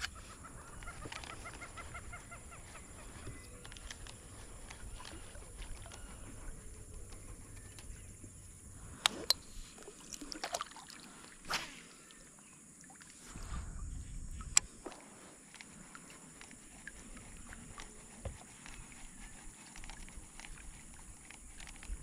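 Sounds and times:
clicks and knocks in plastic kayak: 0:00.8 - 0:01.7
brief swish: 0:11.4 - 0:11.9.

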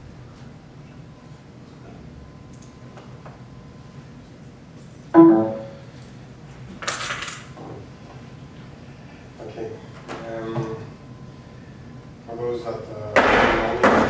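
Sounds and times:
low room hum: 0:00.0 - 0:14.0
ringing note with overtones: 0:05.2 - 0:05.9.

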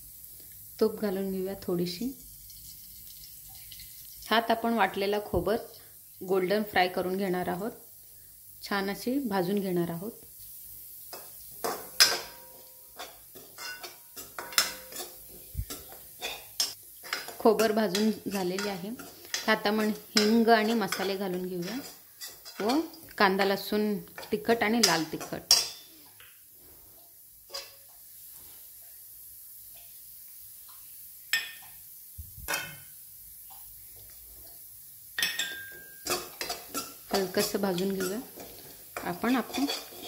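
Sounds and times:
ghee sizzling in a pan: 0:00.0 - 0:40.0
metal clinks against pan: 0:11.1 - 0:18.0, 0:35.2 - 0:36.9
metal spoon scraping a metal pan: 0:11.1 - 0:23.1, 0:24.2 - 0:26.1, 0:27.5 - 0:27.9, 0:35.2 - 0:40.0.

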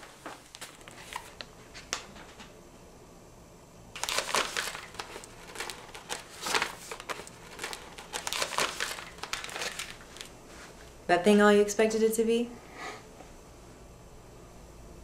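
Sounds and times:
paper rustling and crinkling: 0:00.0 - 0:02.3, 0:04.0 - 0:10.8.

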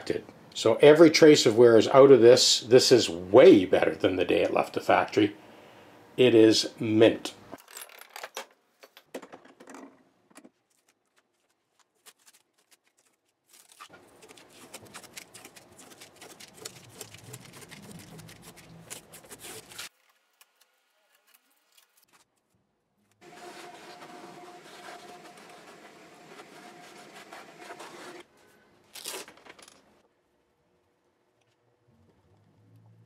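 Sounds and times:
tape peeling crackle: 0:10.6 - 0:22.6, 0:28.9 - 0:29.5.

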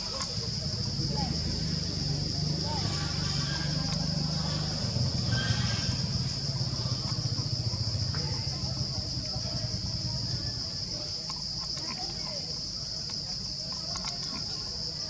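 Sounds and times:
high-pitched insect drone: 0:00.0 - 0:11.2.

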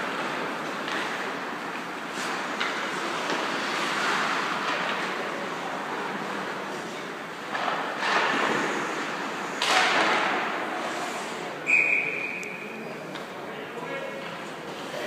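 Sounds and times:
background noise: 0:00.0 - 0:15.0
short high whistle blast: 0:11.6 - 0:12.8.

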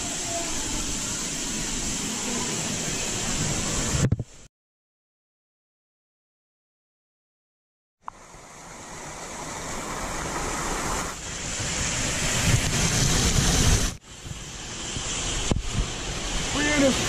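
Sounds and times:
waterfall pouring over rocks: 0:00.0 - 0:04.5, 0:08.1 - 0:17.0.

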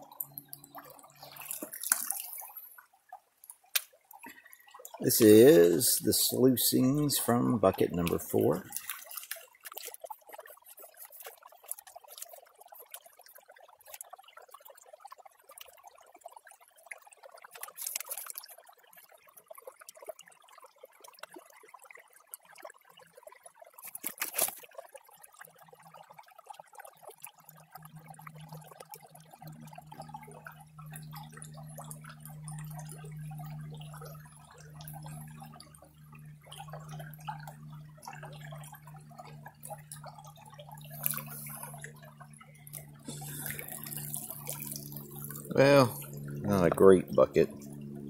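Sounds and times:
water sloshing and trickling: 0:00.0 - 0:48.0
steady low hum: 0:04.2 - 0:09.8, 0:27.7 - 0:48.0
water splashing from pan: 0:34.6 - 0:46.8.

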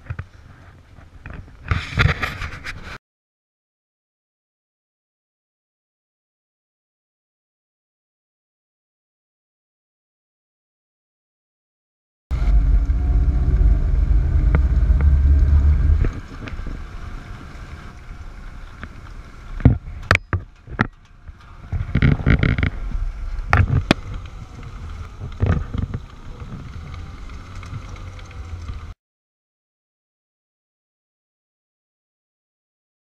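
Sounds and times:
scraping: 0:12.3 - 0:28.9
wind hiss: 0:12.3 - 0:28.9
snowcat engine and tracks rumbling: 0:12.3 - 0:29.0.

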